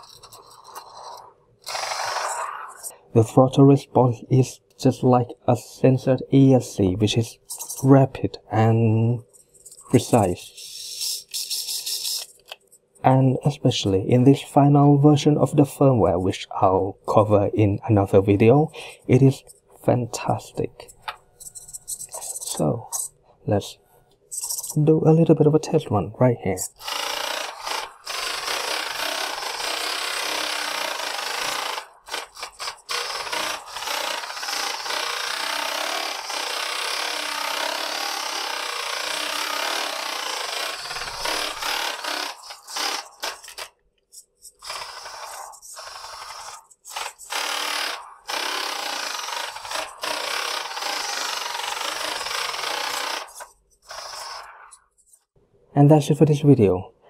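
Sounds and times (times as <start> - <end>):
rc car motor whirring on wood: 0.0 - 2.9, 26.8 - 55.1.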